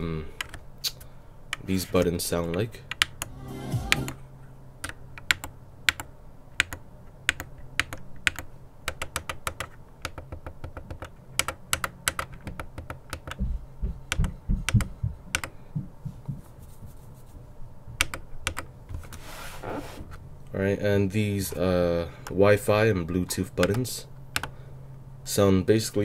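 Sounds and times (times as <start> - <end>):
dull low thumps: 13.4 - 16.5.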